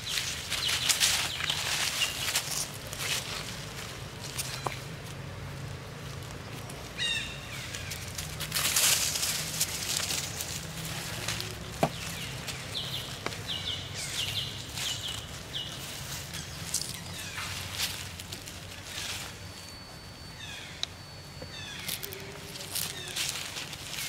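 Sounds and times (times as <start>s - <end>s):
dry leaves rustling and crackling: 0.0s - 24.0s
high chirps: 12.3s - 24.0s.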